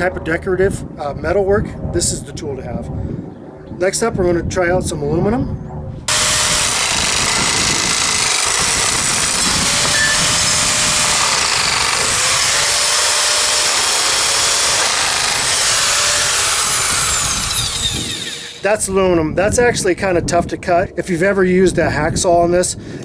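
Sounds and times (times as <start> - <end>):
sheet-metal nibbler cutting aluminum: 6.1 - 18.7.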